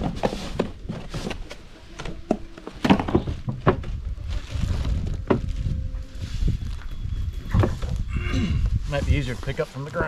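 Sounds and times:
wind rumbling on microphone: 0:03.0 - 0:10.0.

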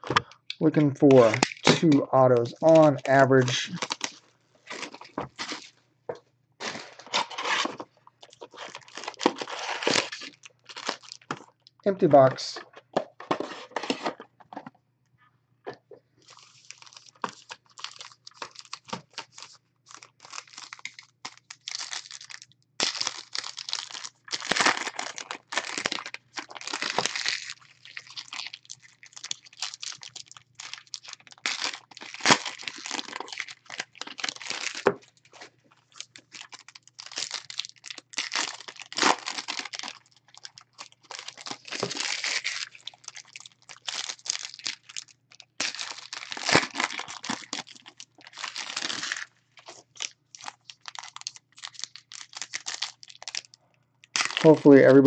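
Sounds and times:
foil packs tearing and crinkling: 0:03.6 - 0:05.7, 0:06.6 - 0:11.4, 0:16.3 - 0:35.0, 0:35.9 - 0:53.5, 0:54.1 - 0:54.6.

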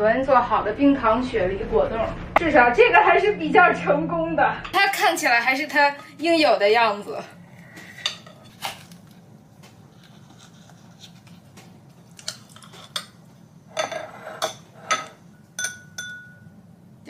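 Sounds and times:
metal spoon clinking on glass: 0:13.8 - 0:16.5.

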